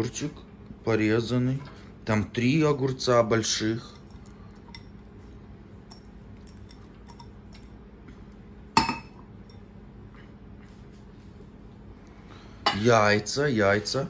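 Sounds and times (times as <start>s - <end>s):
glass clink: 8.8s - 9.6s.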